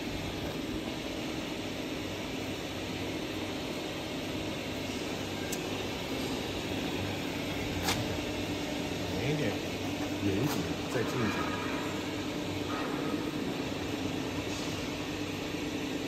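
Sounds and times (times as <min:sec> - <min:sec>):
lift motor humming: 0:03.2 - 0:16.0.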